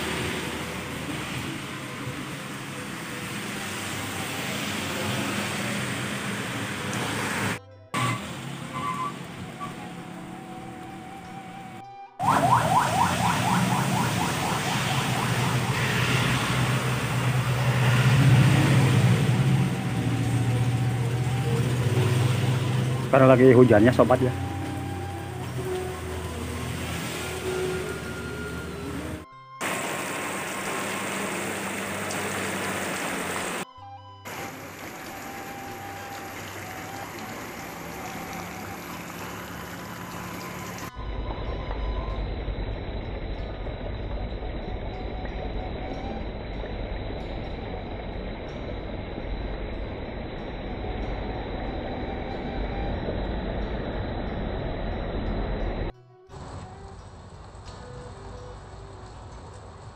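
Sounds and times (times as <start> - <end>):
heavy rain falling: 0.0 - 10.8, 12.2 - 33.6, 34.3 - 59.9
low rumble: 40.9 - 57.6.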